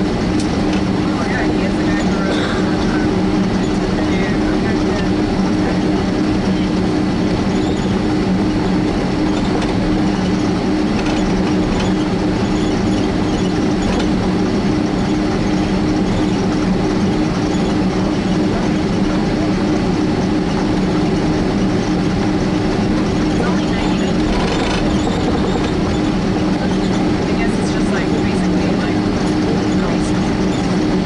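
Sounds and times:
airliner rolling rumble: 0.0 - 31.0
jet engine drone: 0.0 - 31.0
faint rattles: 8.8 - 31.0.

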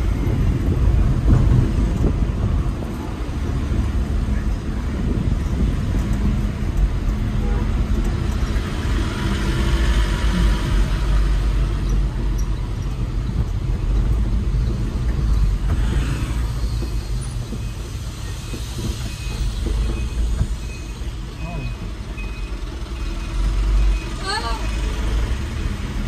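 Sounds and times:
engine and road rumble: 0.0 - 26.0
reversing alarm beeping: 17.6 - 25.0.

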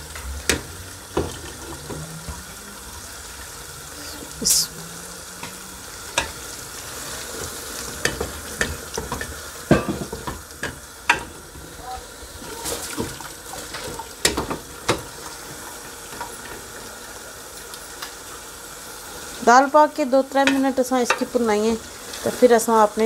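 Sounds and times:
frying hiss: 0.0 - 23.0
spatula scraping and knocking pan: 7.4 - 11.7.

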